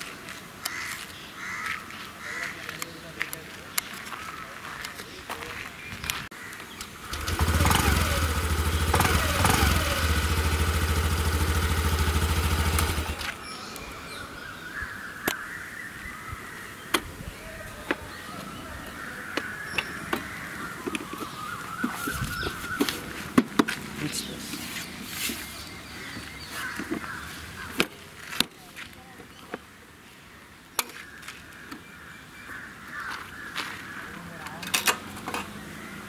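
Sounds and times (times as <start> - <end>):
scooter engine running: 7.0 - 13.4.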